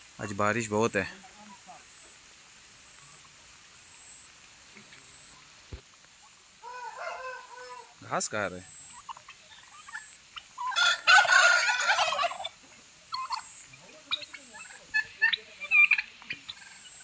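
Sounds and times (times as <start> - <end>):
turkey flock short calls: 0.2 - 17.0
turkey gobbling: 6.2 - 8.0, 8.6 - 17.0.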